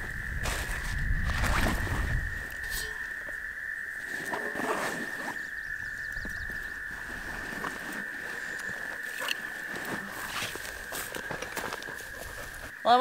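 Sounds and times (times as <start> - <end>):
frogs trilling: 0.0 - 13.0
backpack rustling and clicks: 6.9 - 12.7.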